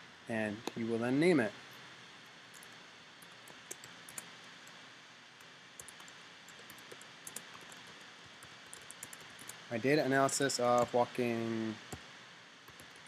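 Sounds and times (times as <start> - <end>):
steady low hiss: 0.0 - 13.0
keyboard typing clicks: 2.5 - 4.3, 5.8 - 9.6, 10.4 - 11.0, 12.7 - 13.0.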